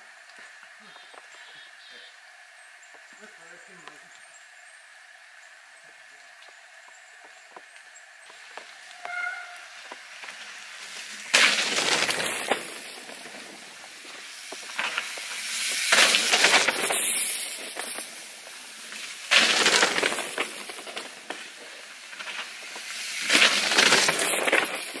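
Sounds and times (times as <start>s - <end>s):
mountain bikes passing on dirt: 0.0s - 25.0s
knobby tyres skidding through dirt: 6.2s - 25.0s.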